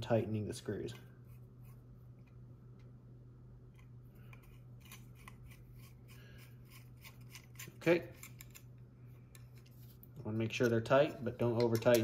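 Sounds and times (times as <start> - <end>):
steady low hum: 0.0 - 12.0
screwdriver ticks and scrapes: 3.7 - 9.7.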